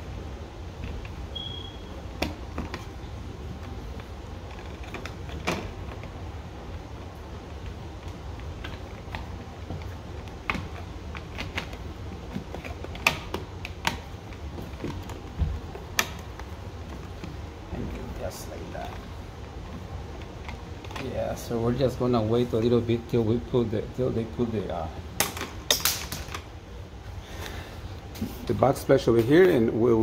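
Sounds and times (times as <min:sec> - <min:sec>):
wires clicking into plastic box: 0:25.2 - 0:26.5.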